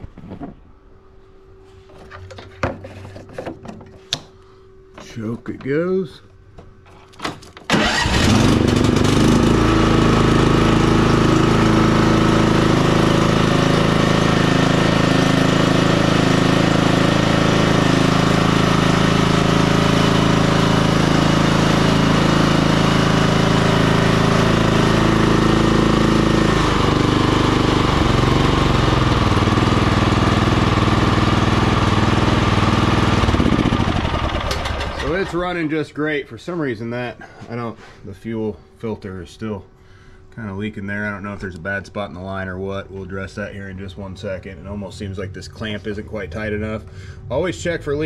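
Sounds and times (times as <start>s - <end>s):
riding mower engine running: 7.7s - 35.7s.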